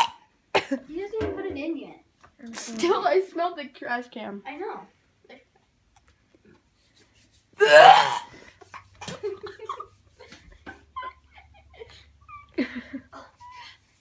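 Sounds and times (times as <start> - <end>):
boy laughing wheezily: 7.6 - 14.0.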